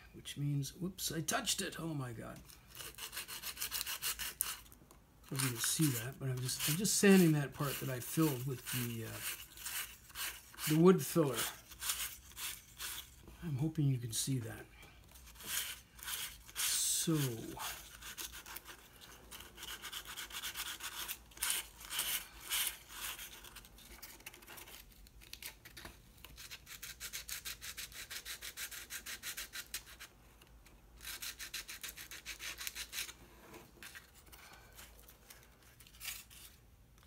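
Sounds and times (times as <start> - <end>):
sanding wood rubbing strokes: 5.4 - 13.2, 15.3 - 18.8.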